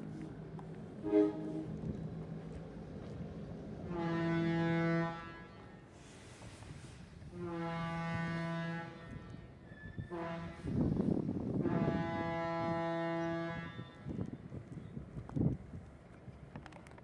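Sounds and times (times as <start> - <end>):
train horn blasts: 1.0 - 1.7, 3.9 - 5.8, 7.3 - 9.5, 10.1 - 11.0, 11.6 - 14.1.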